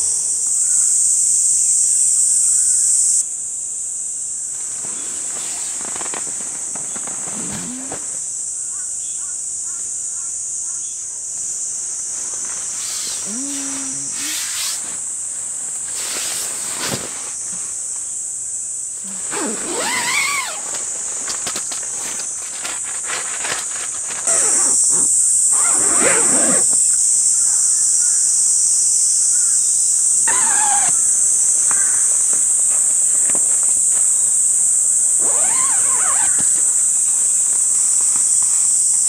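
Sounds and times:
insects droning: 0:00.0 - 0:39.0
short rustles: 0:04.5 - 0:08.4, 0:12.1 - 0:18.2, 0:19.0 - 0:26.9
animal calls: 0:12.3 - 0:14.4, 0:24.3 - 0:26.9, 0:30.2 - 0:33.5, 0:35.2 - 0:37.9.

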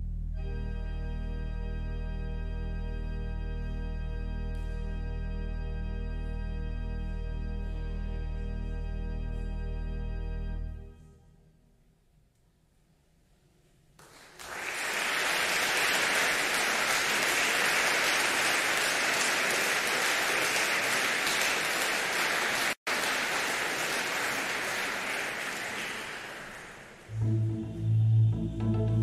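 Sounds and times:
music: 0:00.0 - 0:11.7, 0:27.1 - 0:29.0
audience applauding: 0:14.0 - 0:27.2.

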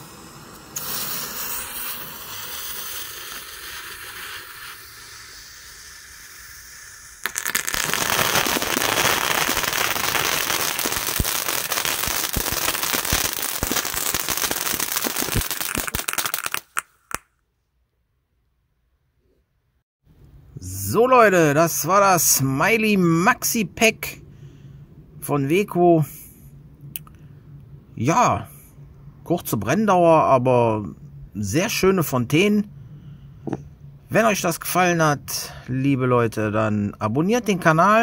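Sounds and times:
fuse hissing: 0:00.0 - 0:15.9
firework fountain crackling: 0:00.0 - 0:17.3.

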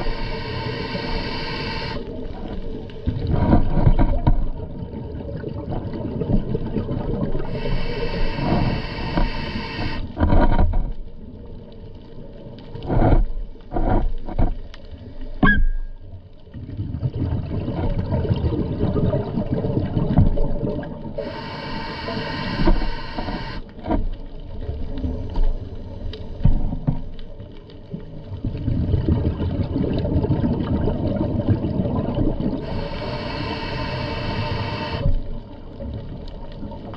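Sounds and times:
diver exhaling bubbles: 0:00.0 - 0:02.0, 0:28.6 - 0:35.1
low rumble of water noise: 0:00.0 - 0:36.9.

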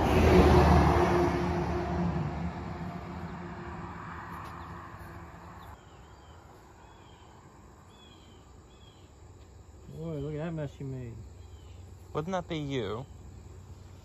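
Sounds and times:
vehicle engine hum: 0:00.0 - 0:05.9.

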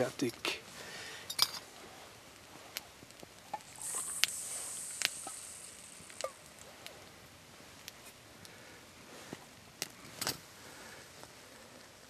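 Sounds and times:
water pouring into a mug: 0:03.6 - 0:06.7.

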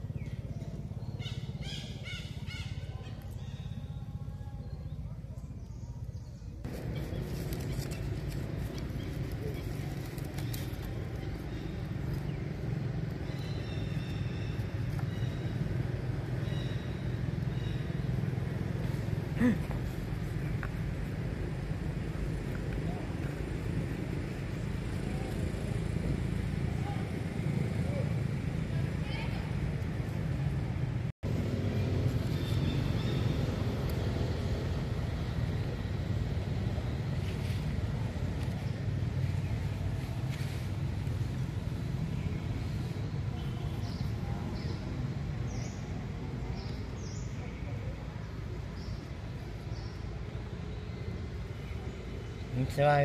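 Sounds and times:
steady low rumble: 0:00.0 - 0:52.6.

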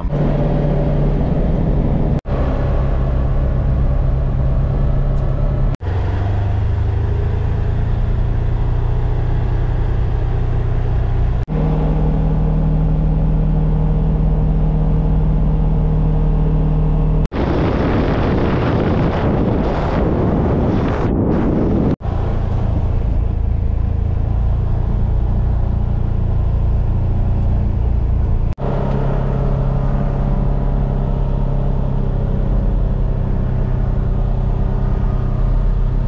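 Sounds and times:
engine running while driving: 0:00.0 - 0:36.0
rough rushing noise: 0:17.3 - 0:25.6.

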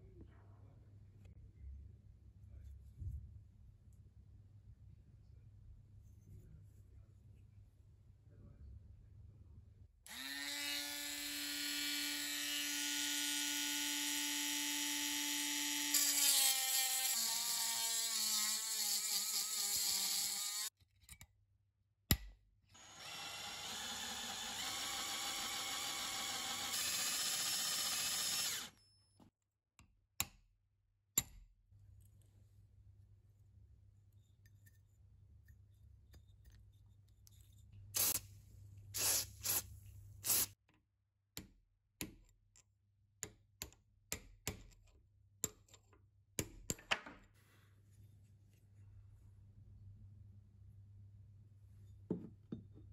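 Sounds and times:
electric drill whining: 0:10.1 - 0:17.6, 0:22.8 - 0:28.8.

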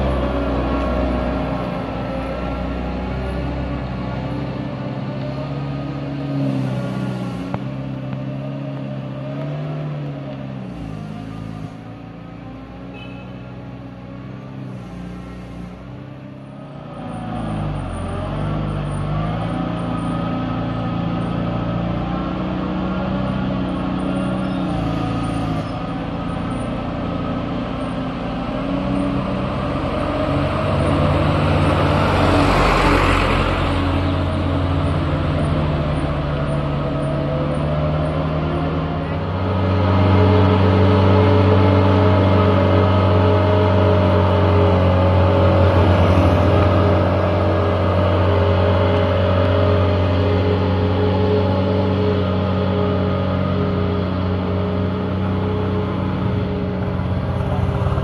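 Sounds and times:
truck diesel engine: 0:00.0 - 0:58.0.

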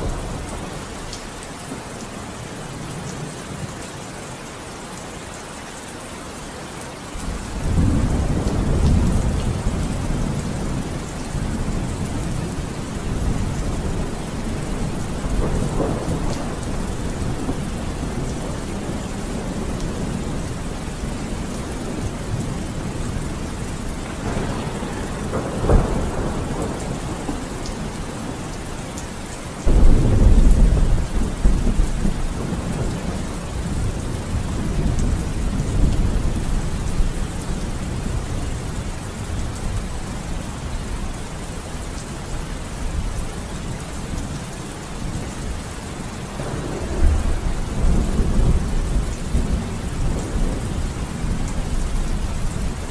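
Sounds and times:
steady rain: 0:00.0 - 0:52.9
thunder rumbling: 0:07.2 - 0:41.6, 0:45.0 - 0:52.9.

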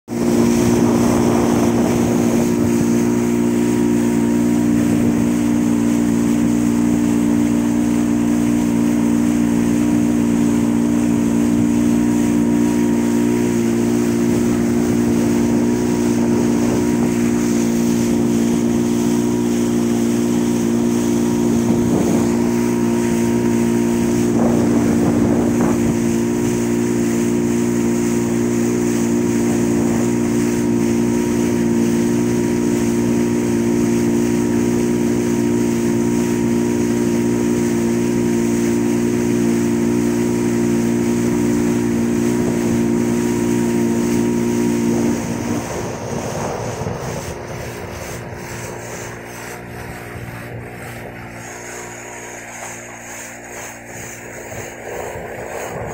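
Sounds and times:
boat engine droning: 0:00.0 - 0:55.9
water rushing along hull: 0:00.0 - 0:55.9.

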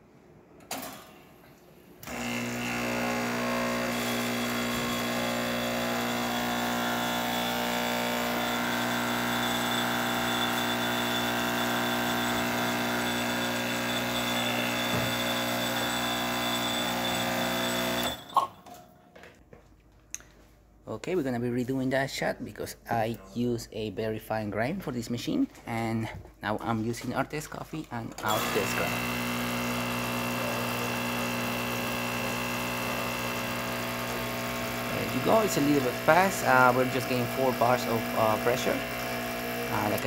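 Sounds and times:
espresso machine pump buzzing: 0:02.0 - 0:18.4, 0:28.3 - 0:40.0.

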